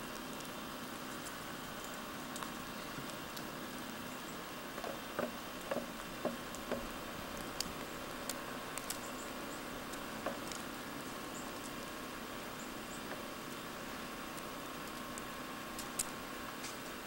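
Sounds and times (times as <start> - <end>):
steady hiss: 0.0 - 17.0
faint ticks: 4.1 - 11.9.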